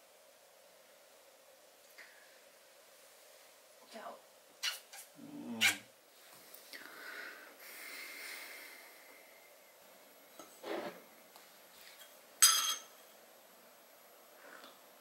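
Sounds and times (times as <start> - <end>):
teaspoon clinking ceramic mug: 12.4 - 13.0.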